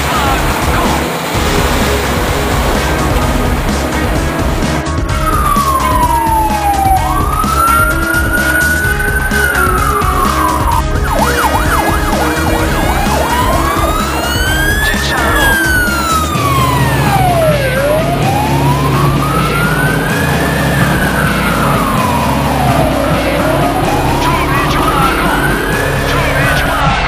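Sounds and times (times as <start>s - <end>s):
truck engine rumble: 0.0s - 27.0s
fire engine siren wailing: 5.0s - 27.0s.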